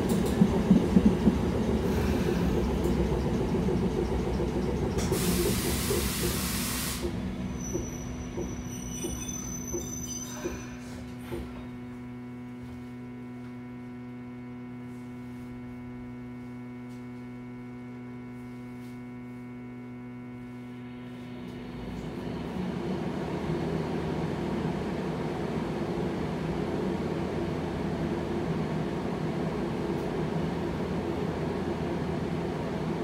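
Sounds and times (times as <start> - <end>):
tram running gear rumble: 0.0 - 11.8
tram electrical equipment hum: 0.0 - 33.0.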